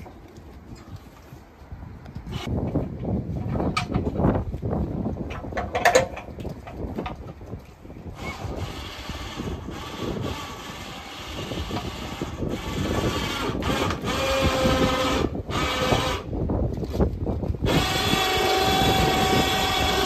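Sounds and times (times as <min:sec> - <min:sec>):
electric winch running: 0:08.2 - 0:16.3, 0:17.6 - 0:20.0.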